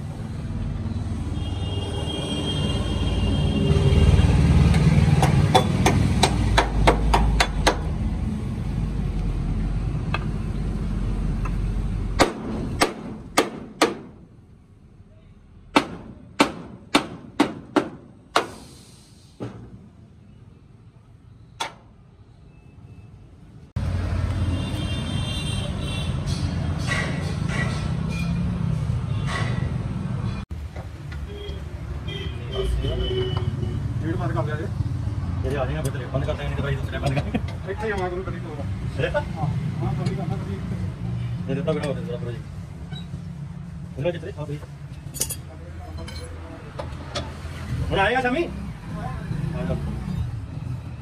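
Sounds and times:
hammer striking steel frame: 5.2 - 7.9, 12.2 - 14.2, 15.7 - 18.6, 26.2 - 28.4.

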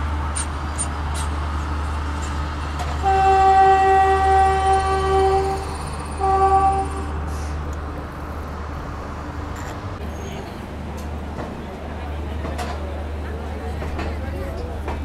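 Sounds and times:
train horn blasts: 3.0 - 7.5.

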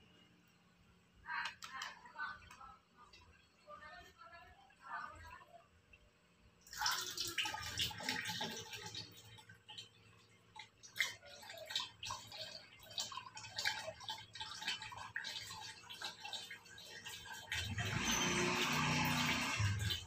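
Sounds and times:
water pouring into plastic jug: 6.6 - 20.0.

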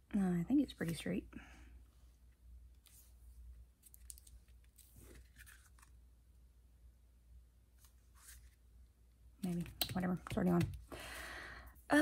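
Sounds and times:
cardstock rustling and scraping: 3.9 - 6.0.

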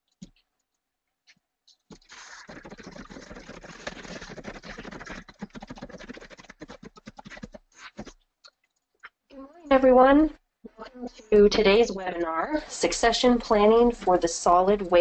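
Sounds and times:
scratchy crackling clicks: 0.0 - 9.2.

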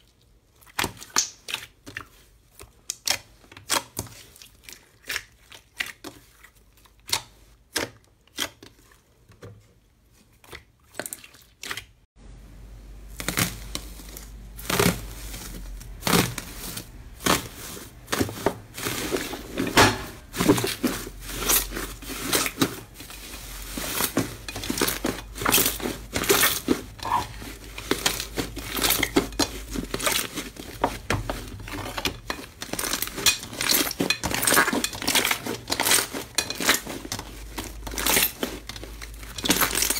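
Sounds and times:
slime crackling and crinkling: 0.0 - 12.0, 12.8 - 39.9
slime squeezed with wet clicks: 0.8 - 1.7.

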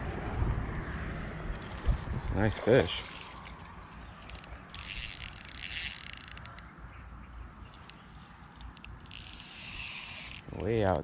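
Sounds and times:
wind rumble: 0.0 - 6.4
fishing reel clicking and whirring: 2.8 - 6.6, 7.7 - 11.0.

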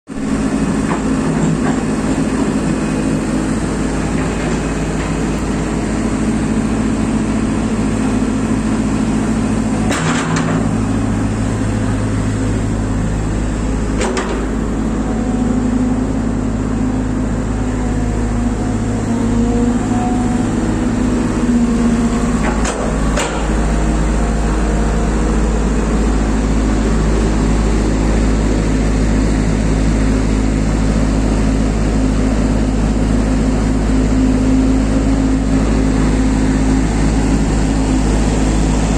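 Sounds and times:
excavator diesel engine running: 0.1 - 38.9.

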